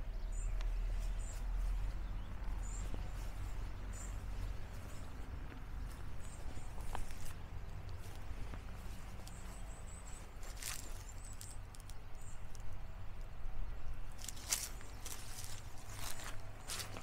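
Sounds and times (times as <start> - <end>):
low steady rumble: 0.0 - 17.0
soft footsteps outdoors: 0.0 - 17.0.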